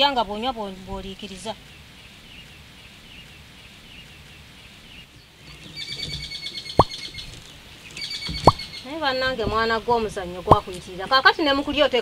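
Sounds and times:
birds chirping: 0.0 - 12.0
dropping bloop tone: 6.7 - 7.0, 8.4 - 8.7.

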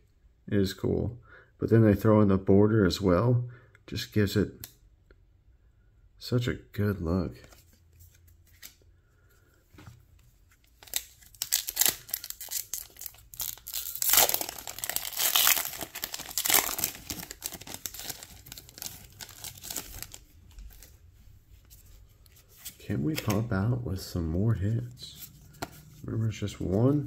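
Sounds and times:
foil wrapper tearing and crinkling: 10.8 - 20.9.

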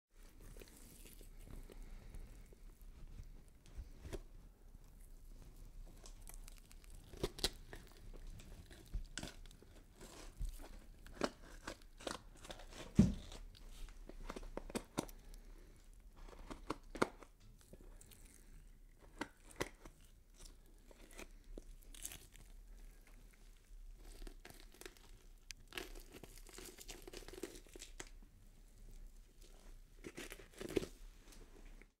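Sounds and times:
wet tearing and crunching: 0.4 - 2.5, 5.8 - 15.5, 16.2 - 28.2, 29.4 - 30.9.

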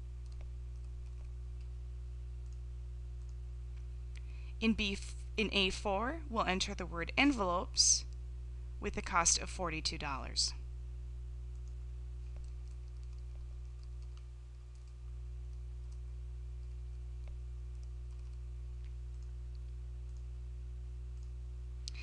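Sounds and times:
low hum: 0.0 - 22.0
keyboard typing clicks: 0.2 - 1.7, 2.4 - 2.6, 11.5 - 16.0, 16.6 - 20.3.

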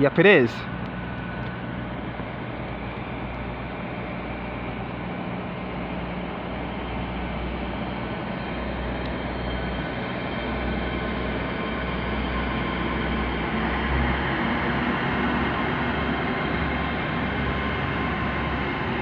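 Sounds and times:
train diesel engines idling: 0.0 - 19.0.

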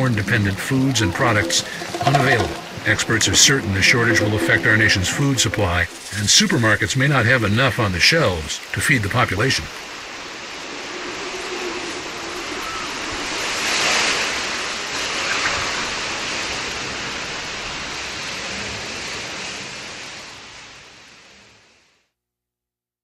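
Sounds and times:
steady rushing noise: 0.0 - 7.5, 9.8 - 14.5.

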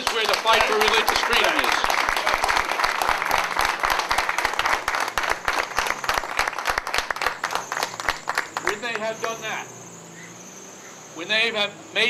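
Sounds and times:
crowd applauding: 0.0 - 9.5.

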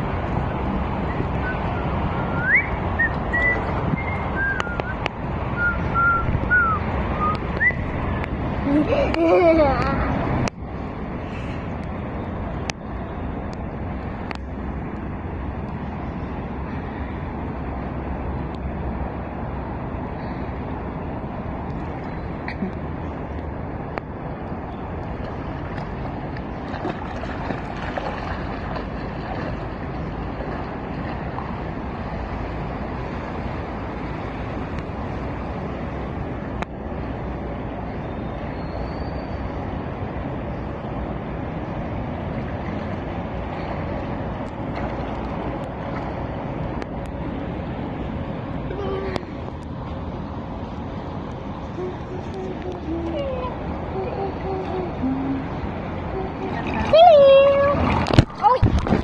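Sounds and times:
wind rumbling on microphone: 0.0 - 59.0
pool water splashing from swimming: 25.0 - 33.2, 56.2 - 59.0.

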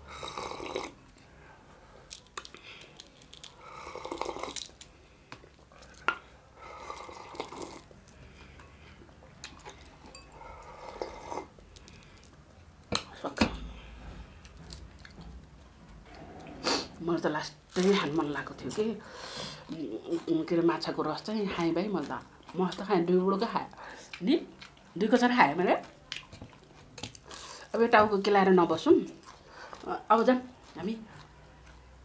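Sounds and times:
person slurping broth: 3.7 - 4.5
dishes clinking: 9.8 - 10.5
chewing: 25.8 - 27.5, 29.0 - 29.9.

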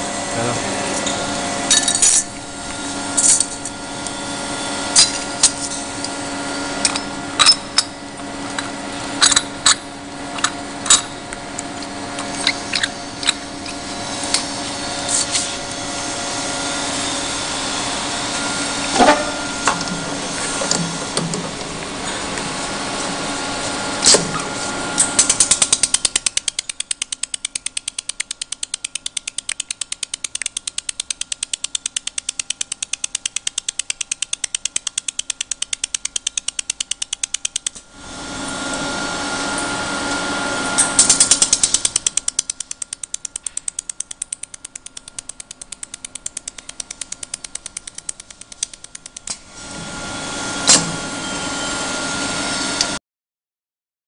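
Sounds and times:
machine hum with thin whine: 0.0 - 53.0
laser welder rapid ticks: 3.2 - 15.8, 24.9 - 37.9, 40.8 - 49.5.

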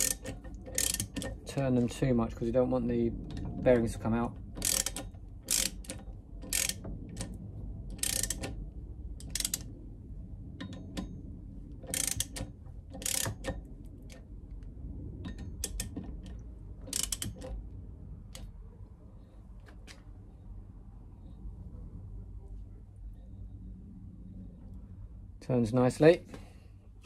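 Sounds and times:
socket ratchet clicking: 0.0 - 1.5, 4.5 - 8.6, 9.2 - 9.7, 11.8 - 14.2, 15.4 - 17.6.

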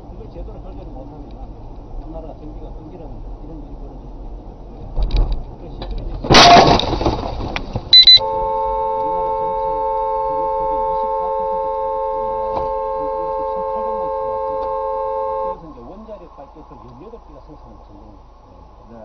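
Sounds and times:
car horn: 6.3 - 6.8, 7.9 - 16.0
windshield glass smashing: 6.3 - 8.1
short high beep: 7.9 - 8.3.

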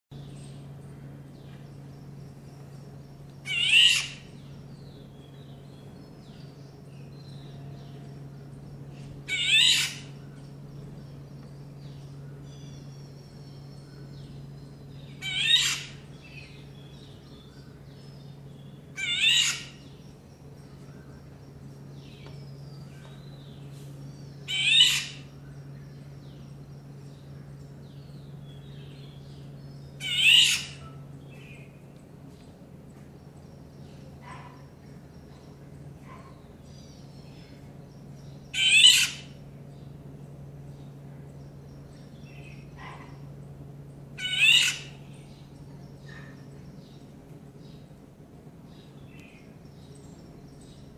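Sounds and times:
bird harsh call: 3.4 - 4.3, 15.2 - 16.1, 19.0 - 19.8, 24.5 - 25.3, 30.0 - 31.0, 38.5 - 39.4, 44.2 - 45.1.

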